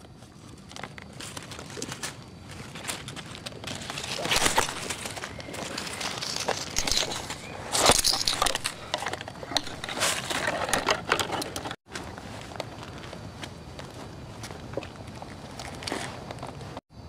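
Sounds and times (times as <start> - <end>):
twigs scraping against camera: 0.0 - 13.3.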